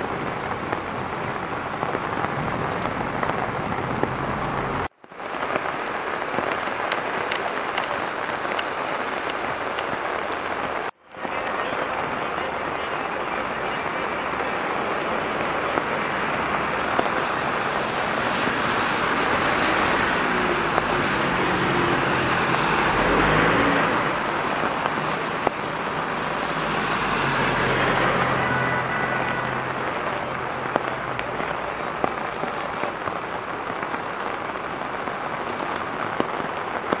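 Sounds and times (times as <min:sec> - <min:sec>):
heavy rain on wet street: 0:00.0 - 0:37.0
vehicle driving past on wet road: 0:14.1 - 0:32.2.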